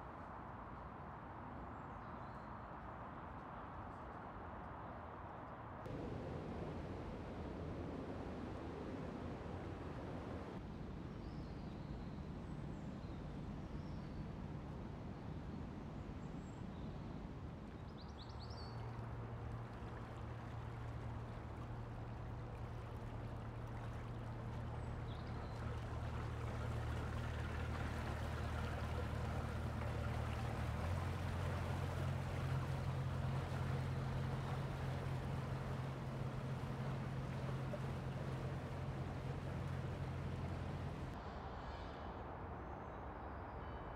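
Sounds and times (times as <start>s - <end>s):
boat engine hum: 5.9s - 10.6s, 18.7s - 41.2s
water rushing through sluices: 18.8s - 41.2s.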